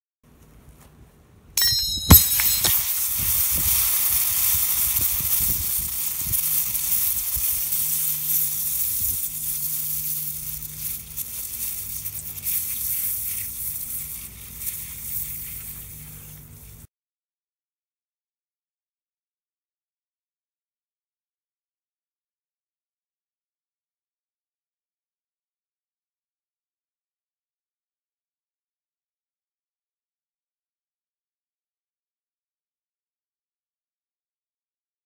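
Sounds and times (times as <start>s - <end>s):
anvil crushing aerosol can: 1.6s - 15.8s
aerosol can hissing: 2.7s - 16.7s.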